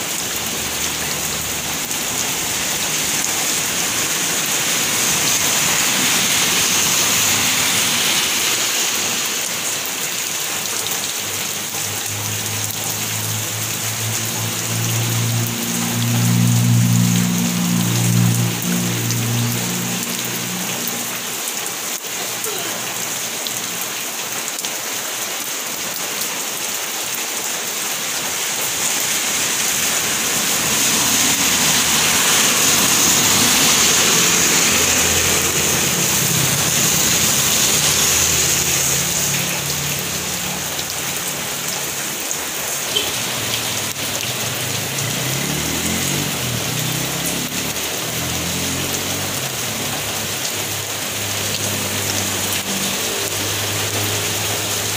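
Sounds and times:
rain on wet pavement: 0.0 - 54.9.

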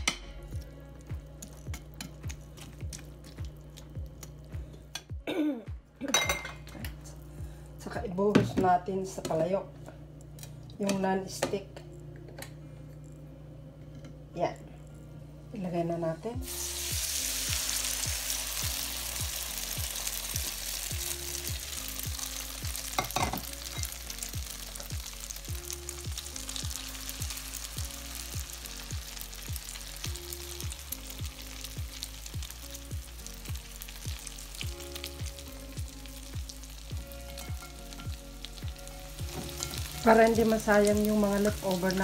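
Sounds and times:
background music with steady beat: 0.0 - 8.8, 16.3 - 42.0
egg sizzling in hot oil: 16.4 - 42.0.

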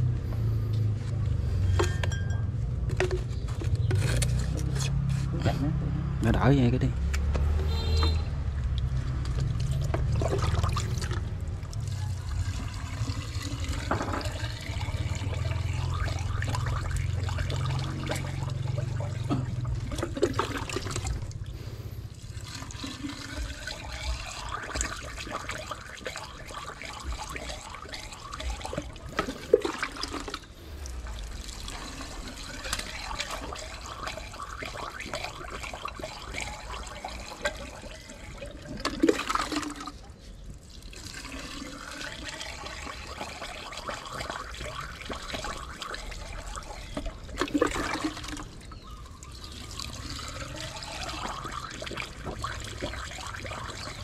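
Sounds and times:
water rushing and splashing: 6.0 - 40.0, 40.9 - 54.0.

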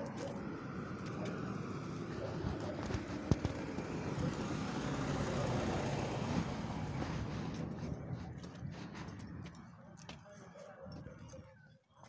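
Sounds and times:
low street noise: 0.0 - 12.0.

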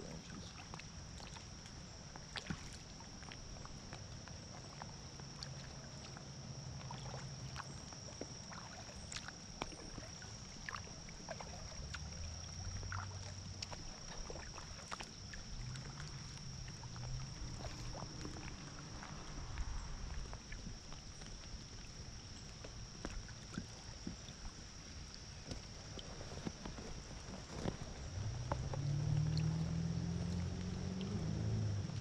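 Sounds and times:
small drips and ticks: 0.0 - 32.0
water lapping and trickling: 0.0 - 32.0
low rumble: 15.5 - 20.6, 27.4 - 32.0.

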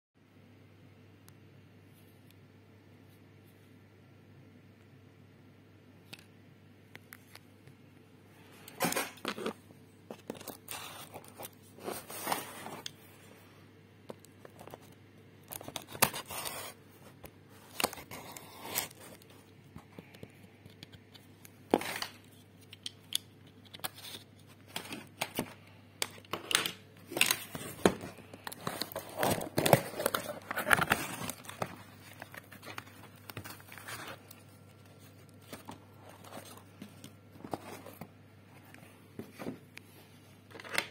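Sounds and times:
cardboard and tape tearing: 17.7 - 19.2.

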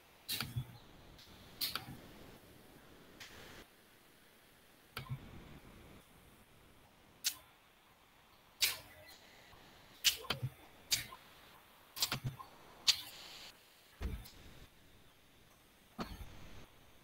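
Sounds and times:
faint room noise: 0.0 - 17.0
computer mouse clicks: 12.0 - 13.1.

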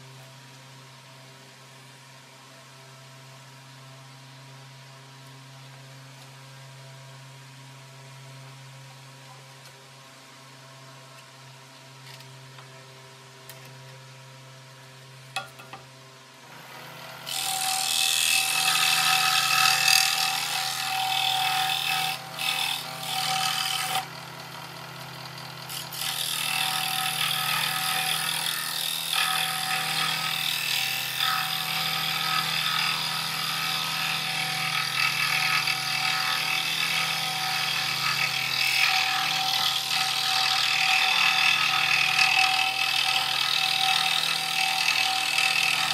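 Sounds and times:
scroll saw cutting wood: 16.4 - 45.9.

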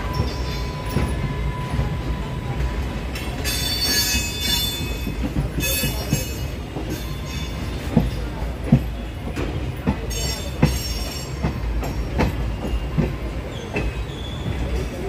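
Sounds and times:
train rumbling on rails: 0.0 - 15.0
wheel squeal: 13.5 - 15.0.

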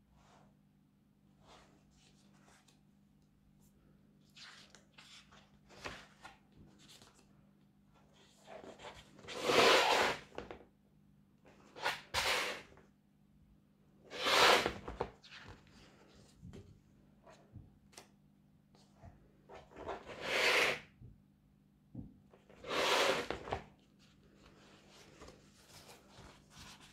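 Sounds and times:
paper pages rustling: 23.3 - 26.9.

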